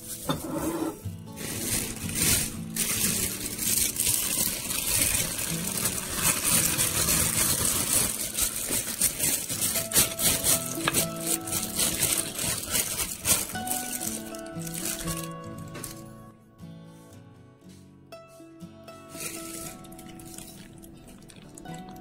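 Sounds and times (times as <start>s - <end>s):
plastic bag crinkling: 1.3s - 16.2s, 19.2s - 21.8s.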